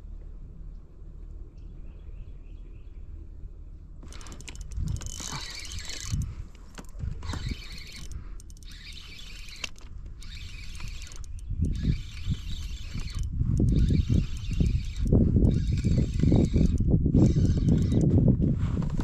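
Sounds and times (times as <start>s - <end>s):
fishing reel cranking: 4.0s - 18.1s.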